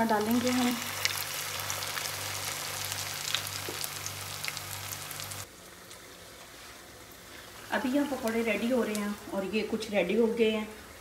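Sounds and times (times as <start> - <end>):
food deep-frying in oil: 0.0 - 11.0.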